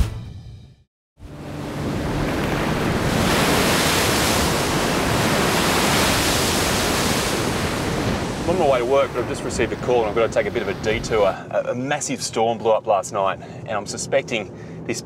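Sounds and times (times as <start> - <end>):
wind: 1.2 - 15.0
surf breaking on rocks: 1.4 - 11.3.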